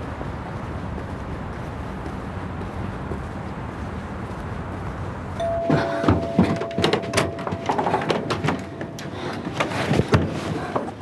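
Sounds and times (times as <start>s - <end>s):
steady background noise: 0.0s - 11.0s
doorbell tone: 5.4s - 9.0s
door knocks and clicks: 5.7s - 9.0s.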